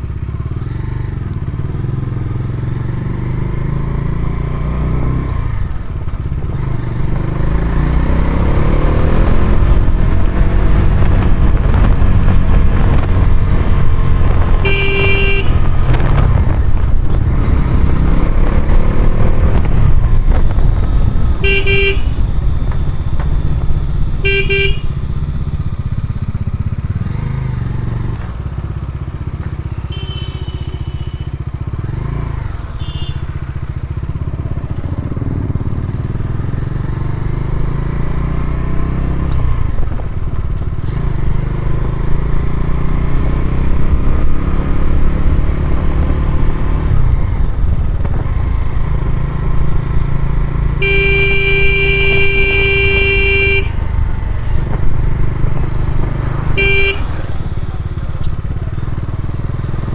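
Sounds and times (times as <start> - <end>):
motorcycle engine running: 0.0 - 59.9
horn beeping: 14.5 - 15.8, 21.4 - 22.4, 24.2 - 25.0, 29.8 - 31.5, 32.7 - 33.4, 50.7 - 54.0, 56.5 - 57.6
higher-pitched horn toots: 14.6 - 15.8, 21.4 - 22.3, 24.2 - 24.9, 29.9 - 31.4, 50.7 - 53.9, 56.6 - 57.3.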